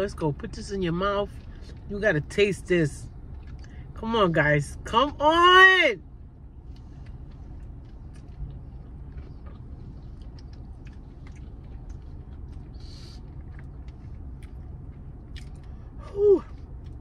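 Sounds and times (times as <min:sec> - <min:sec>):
low steady hum: 0:00.0 - 0:17.0
woman chewing: 0:06.6 - 0:17.0
woman exclaiming ooh: 0:16.0 - 0:16.5.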